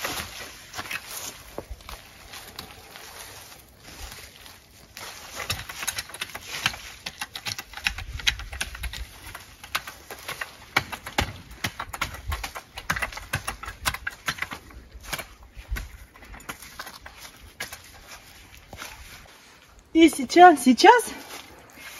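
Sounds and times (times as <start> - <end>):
garden tool scraping soil and leaves: 0.0 - 7.4, 16.5 - 21.9.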